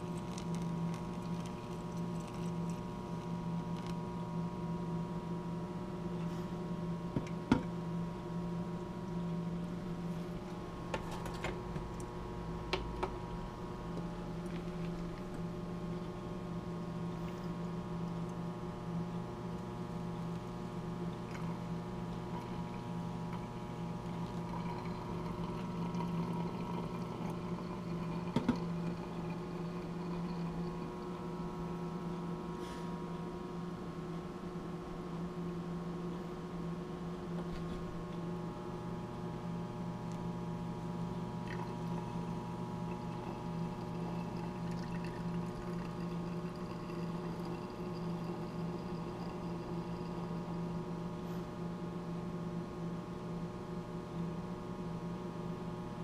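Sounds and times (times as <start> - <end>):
steady machine hum: 0.0 - 56.0.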